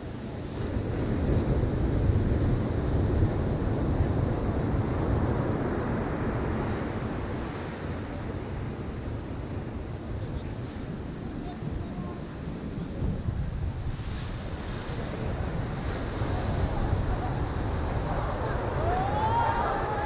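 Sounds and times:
wind buffeting microphone: 0:00.0 - 0:20.0
surf breaking on beach: 0:00.1 - 0:20.0.

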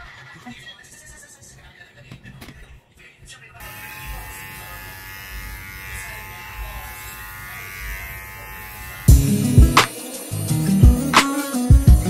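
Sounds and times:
electric hair clipper buzzing: 0:03.6 - 0:12.0
loud music: 0:09.1 - 0:12.0.

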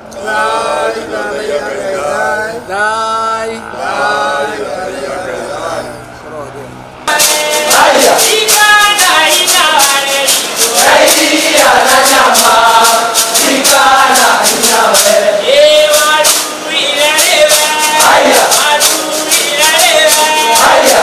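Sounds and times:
group of voices singing: 0:00.0 - 0:06.2, 0:07.1 - 0:21.0
shaken rattle beat: 0:07.1 - 0:21.0.

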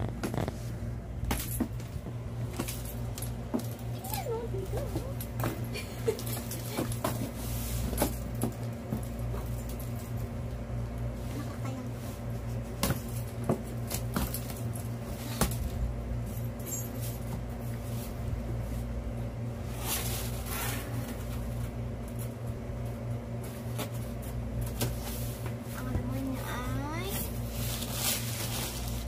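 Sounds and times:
steady low hum: 0:00.0 - 0:29.0
packaging rustling scrape: 0:27.5 - 0:29.0.

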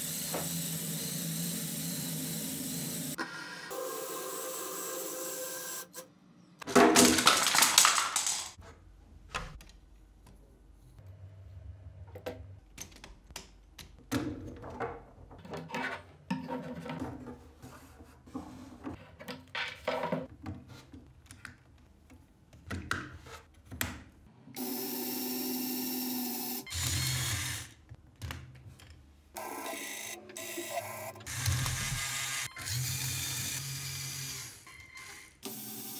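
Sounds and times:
small electric motor running: 0:00.0 - 0:06.0, 0:29.4 - 0:35.9
plastic pieces clicking and rattling: 0:07.0 - 0:08.6.

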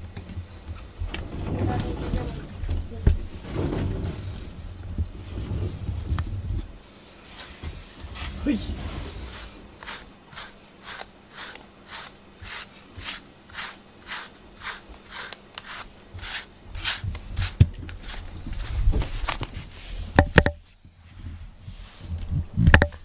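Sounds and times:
low thumps: 0:00.9 - 0:06.8
brush stroking cat fur: 0:07.3 - 0:20.0, 0:21.7 - 0:22.2.

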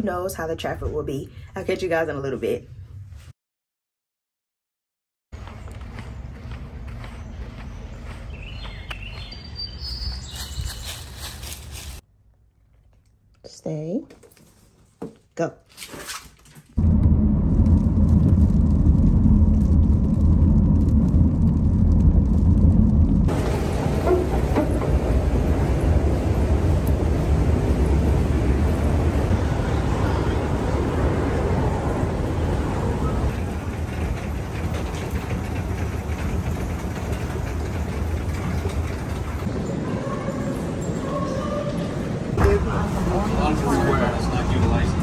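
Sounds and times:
escalator running: 0:23.3 - 0:41.3.

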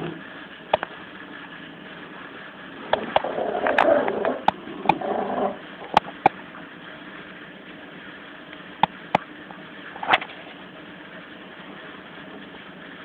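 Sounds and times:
puppy growling: 0:03.0 - 0:05.6.

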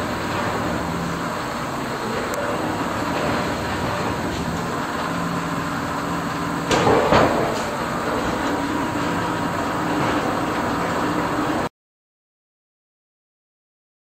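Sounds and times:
loud clunks: 0:06.6 - 0:08.7.

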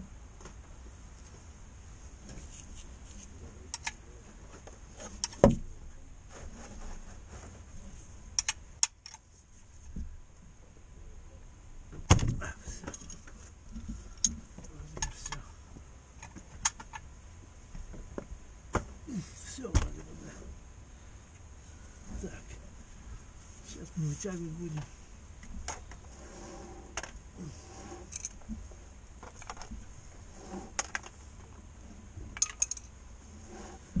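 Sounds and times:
metal hand tools clinking: 0:32.4 - 0:32.9.

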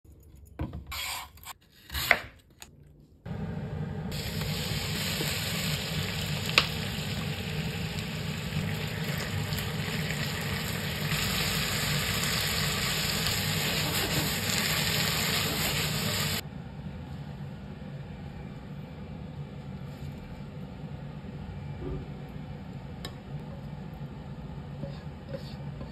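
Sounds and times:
food sizzling in a frying pan: 0:04.1 - 0:16.4.

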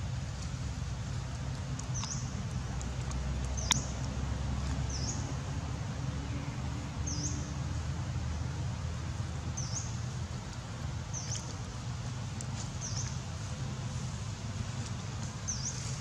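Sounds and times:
low outdoor rumble: 0:00.0 - 0:16.0
bird chirping: 0:03.5 - 0:04.0.

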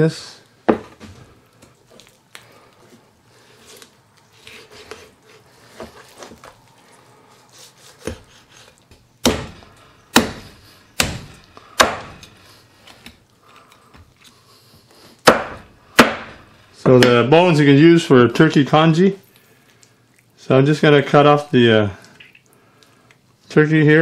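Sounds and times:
knocks and rustles of handling: 0:00.6 - 0:07.0
cleaver chopping meat on board: 0:09.2 - 0:12.4, 0:15.2 - 0:16.4.

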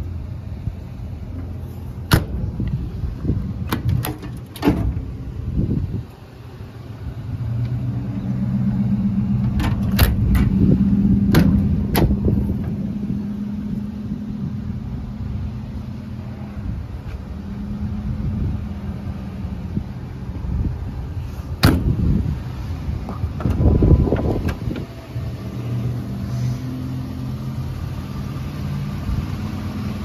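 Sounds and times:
low rumble: 0:00.0 - 0:27.1
vehicle engine hum: 0:00.0 - 0:30.0
metal compartment doors clacking: 0:02.1 - 0:02.8, 0:03.6 - 0:05.2, 0:09.4 - 0:12.8, 0:21.6 - 0:22.1, 0:23.0 - 0:25.0.

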